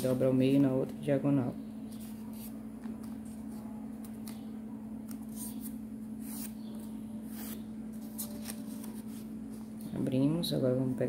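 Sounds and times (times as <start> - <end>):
steady low hum: 0.0 - 11.0
paper rustling and crinkling: 7.4 - 9.9.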